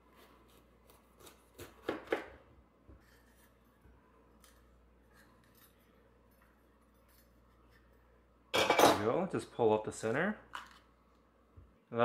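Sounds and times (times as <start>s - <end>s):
knife cutting pepper on board: 0.2s - 2.4s.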